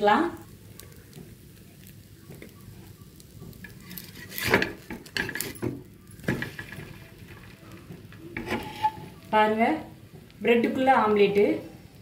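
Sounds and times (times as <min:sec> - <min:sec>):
faint sizzling: 0:00.0 - 0:12.0
metal spatula scraping griddle: 0:03.6 - 0:09.3.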